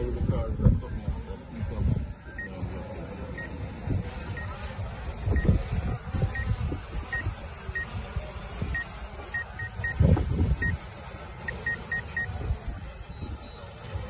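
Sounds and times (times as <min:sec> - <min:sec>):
short high electronic beeps: 0:05.3 - 0:14.0
wind buffeting microphone: 0:09.9 - 0:10.9.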